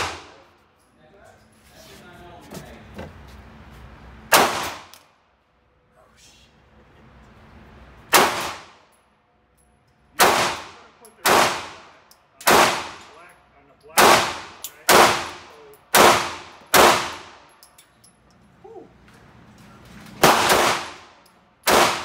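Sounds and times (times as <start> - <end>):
pistol shots echoing: 0.0 - 0.5, 4.3 - 4.9, 8.1 - 8.8, 10.2 - 13.0, 14.0 - 17.4, 20.2 - 22.0.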